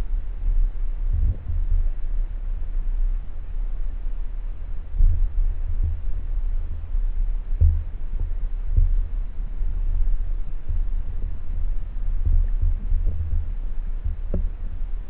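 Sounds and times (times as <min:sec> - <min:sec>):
low underwater rumble: 0:00.0 - 0:15.0
dull thumps underwater: 0:07.6 - 0:07.9.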